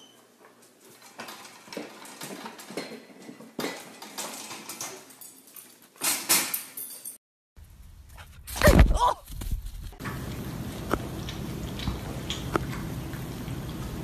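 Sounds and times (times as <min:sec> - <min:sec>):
metal gate rattling and clinking: 0:01.0 - 0:07.2.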